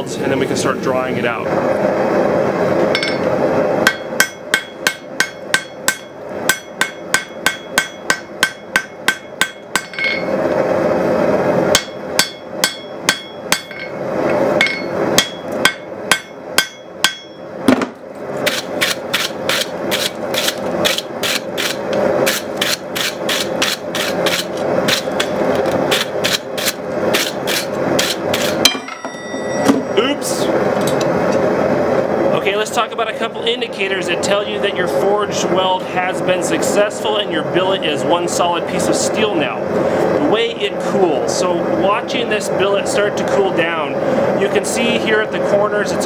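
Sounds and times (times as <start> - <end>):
hammer striking metal on anvil: 3.0 - 3.2, 3.9 - 10.3, 11.7 - 14.0, 14.6 - 17.4, 28.0 - 30.0.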